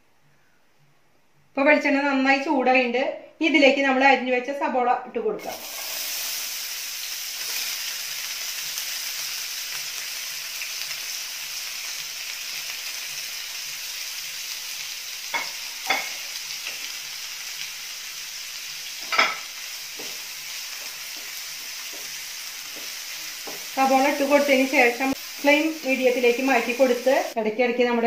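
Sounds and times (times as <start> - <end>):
onions sizzling in oil: 5.4 - 27.4.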